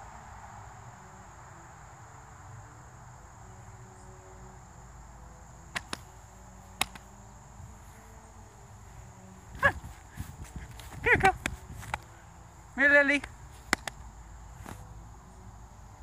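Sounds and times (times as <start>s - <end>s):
insects droning: 0.0s - 16.0s
short sharp clicks: 5.7s - 6.1s, 6.8s - 7.1s, 13.2s - 14.0s.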